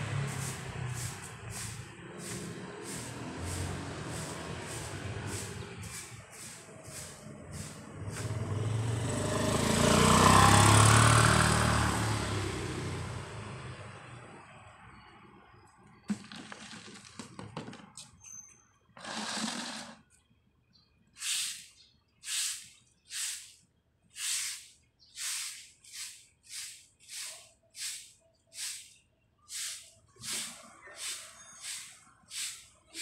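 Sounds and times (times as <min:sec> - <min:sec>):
broom sweeping pavement: 0:00.0 - 0:08.8, 0:19.0 - 0:20.1, 0:21.2 - 0:33.0.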